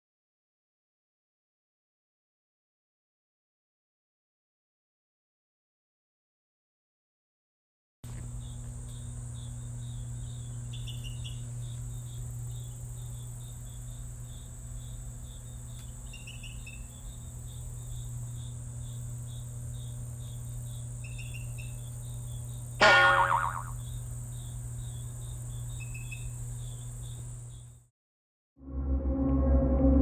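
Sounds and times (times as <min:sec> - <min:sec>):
crickets chirping: 0:08.1 - 0:27.8
higher chirps: 0:22.8 - 0:23.8.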